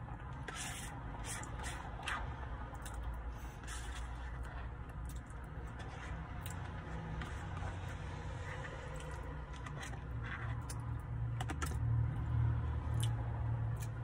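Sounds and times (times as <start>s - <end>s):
low steady hum: 0.0s - 14.0s
plastic fork scraping paperboard tray: 0.1s - 11.8s
chewing: 1.4s - 11.8s.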